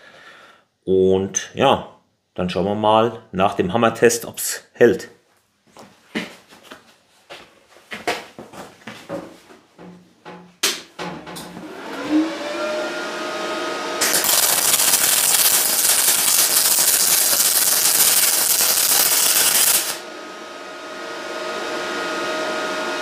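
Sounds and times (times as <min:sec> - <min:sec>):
welding arc hissing: 0:14.0 - 0:20.0
welding machine hum: 0:14.0 - 0:21.5.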